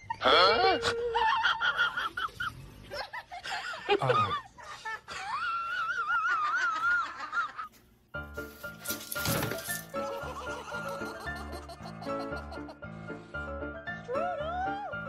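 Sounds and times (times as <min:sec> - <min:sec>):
background music: 0:08.0 - 0:15.0
person laughing in squealing voice: 0:09.9 - 0:12.8.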